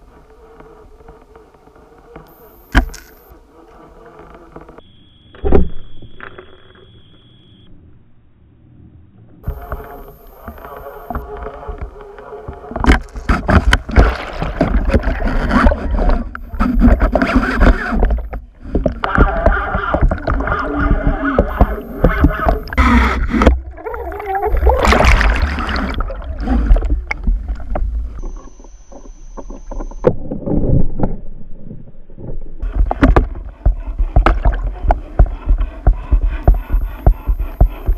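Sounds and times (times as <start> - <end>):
muffled underwater noise: 0.0 - 7.7, 8.7 - 30.1, 32.6 - 37.9
constant low rumble: 0.0 - 37.9
muffled wavering voice-like sounds: 9.4 - 30.0, 32.6 - 37.9.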